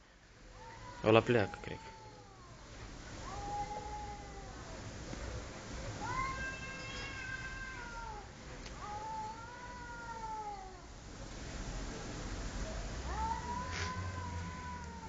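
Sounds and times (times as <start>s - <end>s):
cats yowling: 0.5s - 2.6s, 3.2s - 4.8s, 6.0s - 10.9s, 13.1s - 15.0s.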